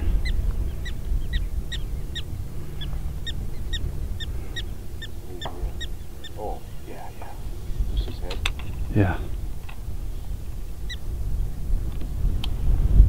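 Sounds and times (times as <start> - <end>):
prairie dog alarm chirps: 0.1 - 8.6, 9.4 - 11.1.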